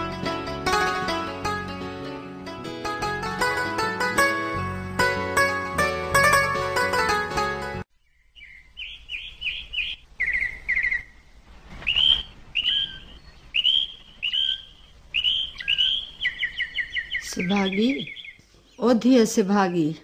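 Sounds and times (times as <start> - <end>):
plucked string tune: 0.0 - 7.8
small birds chirping: 7.9 - 20.0.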